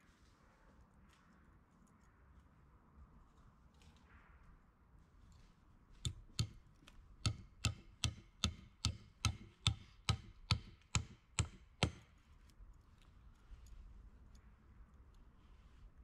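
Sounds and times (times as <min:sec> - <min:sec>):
hand tool striking wood: 0:06.0 - 0:06.6, 0:07.2 - 0:12.2.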